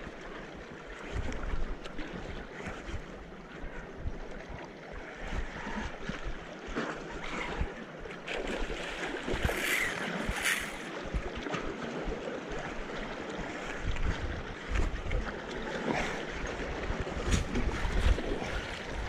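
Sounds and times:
sea water washing on shore: 0:00.0 - 0:19.0
wind buffeting microphone: 0:07.1 - 0:19.0.

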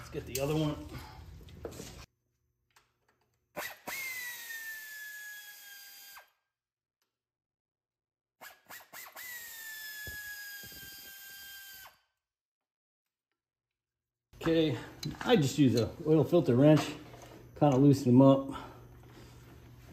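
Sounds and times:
air ratchet whining: 0:03.6 - 0:06.4, 0:08.4 - 0:12.1.

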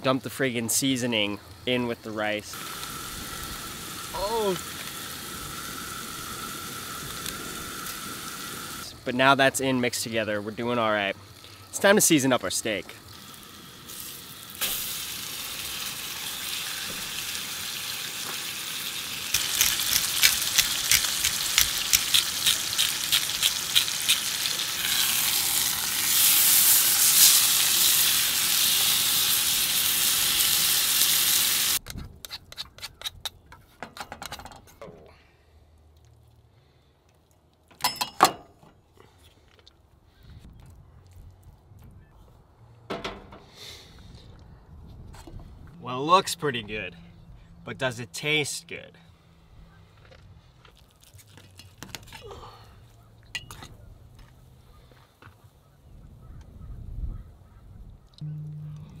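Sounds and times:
steak sizzling in skillet: 0:02.6 - 0:08.9, 0:11.2 - 0:31.8.

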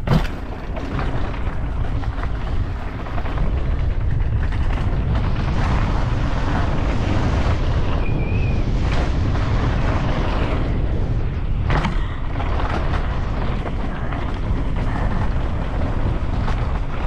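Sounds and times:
tyres rolling on dirt: 0:00.0 - 0:17.0
wind buffeting microphone: 0:00.0 - 0:17.0.

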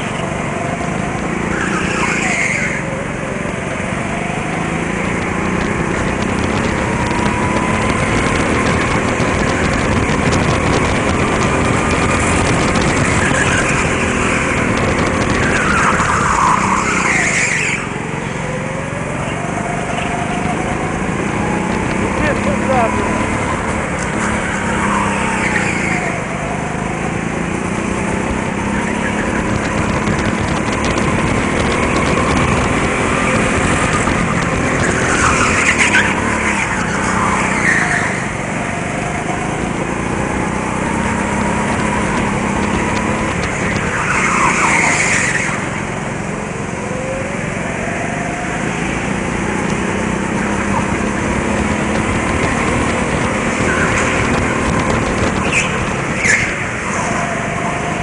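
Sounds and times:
go-kart engines racing: 0:00.0 - 0:58.0
tyre squeals: 0:50.2 - 0:57.8.

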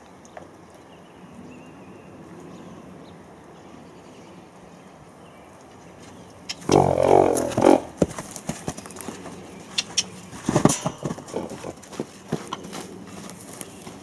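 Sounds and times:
horse hoofbeats on muddy ground: 0:06.0 - 0:14.0.

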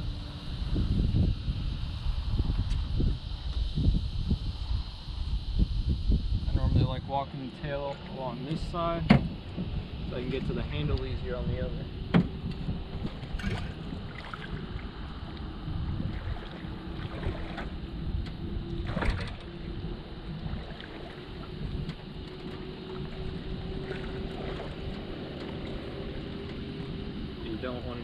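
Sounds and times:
faint steady hum: 0:00.0 - 0:28.0
wind buffeting microphone: 0:00.0 - 0:28.0
knocks against metal boat: 0:09.0 - 0:09.7, 0:12.1 - 0:12.6.

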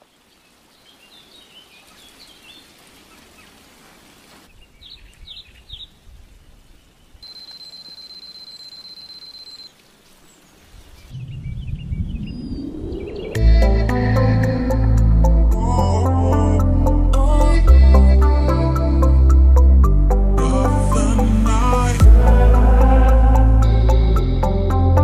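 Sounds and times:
bird chirps: 0:04.5 - 0:06.0, 0:06.7 - 0:13.4
low rising swell: 0:11.2 - 0:15.3.

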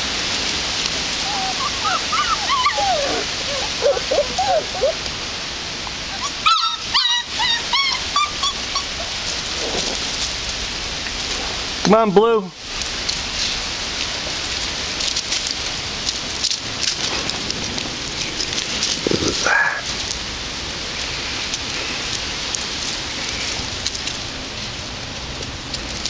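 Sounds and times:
crackling hiss: 0:00.0 - 0:26.0
puppy whining: 0:01.2 - 0:05.1, 0:05.9 - 0:10.0.

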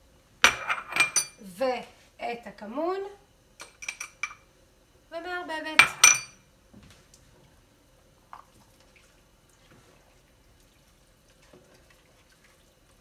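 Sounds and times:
spoon clinking on pot: 0:03.6 - 0:04.4, 0:05.8 - 0:06.4.

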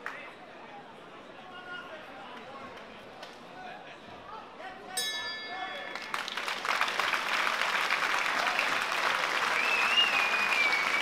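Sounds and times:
crowd applauding and cheering: 0:05.6 - 0:11.0
wavering high whistle: 0:09.6 - 0:11.0.

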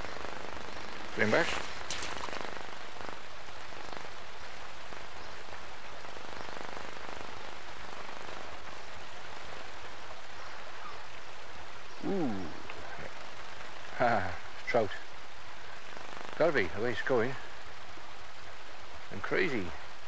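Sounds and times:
river flowing: 0:00.0 - 0:20.0.

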